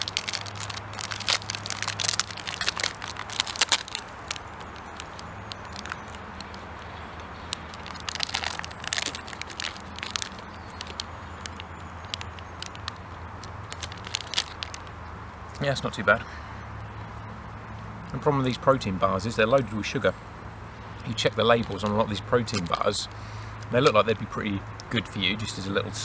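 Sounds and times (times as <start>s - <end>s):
foil wrapper crinkling: 0.0s - 14.9s, 21.6s - 23.0s
campfire crackling: 0.0s - 15.6s, 20.5s - 25.1s.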